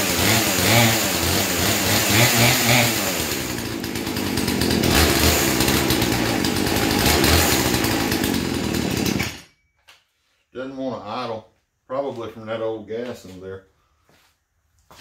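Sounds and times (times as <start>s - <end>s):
chainsaw engine running unevenly: 0.0s - 9.5s.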